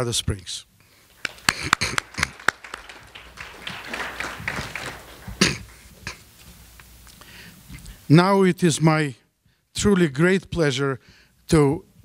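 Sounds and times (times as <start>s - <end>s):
audience applause: 1.1s - 6.2s
sharp hand claps: 1.1s - 6.2s.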